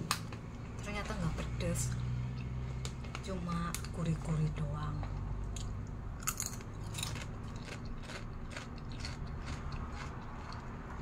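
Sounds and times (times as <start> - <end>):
tortilla chips crunching: 6.2 - 10.7.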